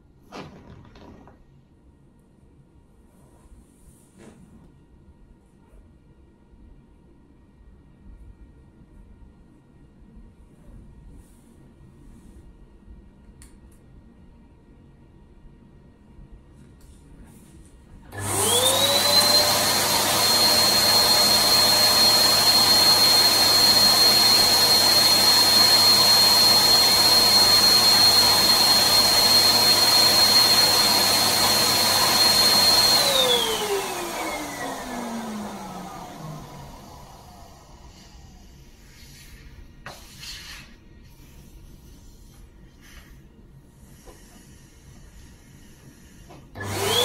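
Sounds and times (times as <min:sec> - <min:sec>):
balloon pump motor whine: 0:18.2 - 0:38.3.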